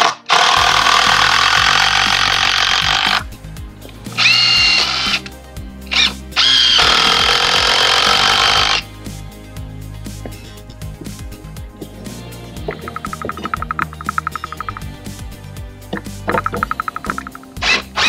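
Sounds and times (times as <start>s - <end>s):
cordless drill driving screws: 0.0s - 3.2s, 4.2s - 5.3s, 6.0s - 8.8s
background music: 0.0s - 18.0s.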